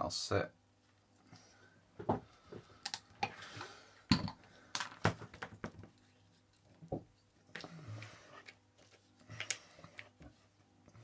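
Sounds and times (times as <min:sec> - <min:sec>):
plastic parts clicking and knocking: 0:04.1 - 0:06.0.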